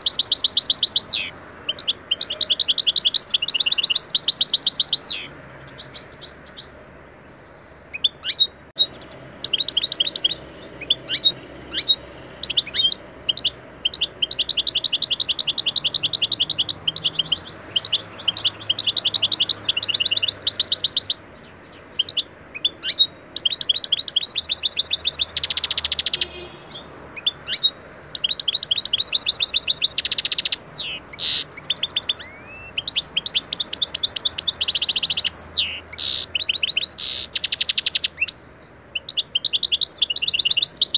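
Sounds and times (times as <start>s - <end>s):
goldfinch singing: 0.0s - 6.8s, 7.4s - 40.9s.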